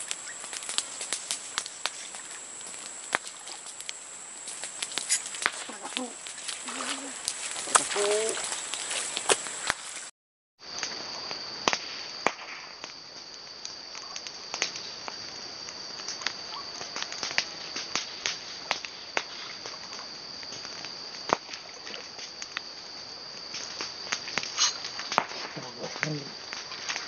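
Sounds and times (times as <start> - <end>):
high-pitched insect drone: 0.0 - 10.0.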